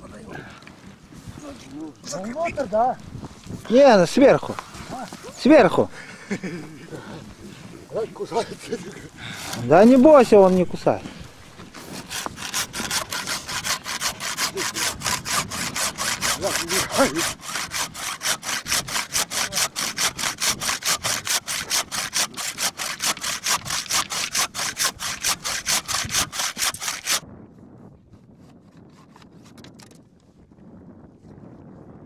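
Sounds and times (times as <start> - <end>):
hand saw cutting antler: 8.3 - 10.0, 11.6 - 27.2, 28.4 - 29.9.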